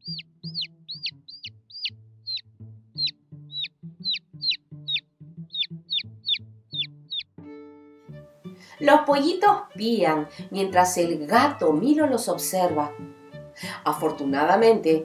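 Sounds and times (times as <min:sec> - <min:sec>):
baby chicks peeping: 0:00.0 - 0:07.3
soft background music: 0:00.0 - 0:15.0.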